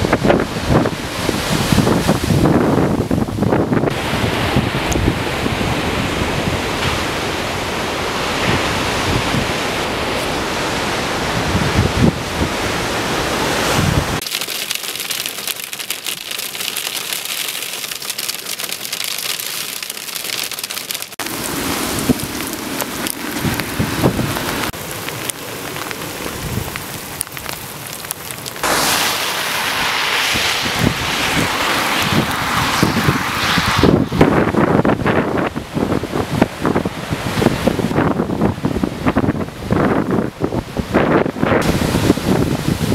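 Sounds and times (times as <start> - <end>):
wind buffeting microphone: 0.0 - 14.2, 21.3 - 27.6, 28.6 - 42.9
surf breaking on rocks: 3.8 - 38.1, 41.5 - 42.9
hail striking a car: 14.2 - 29.6.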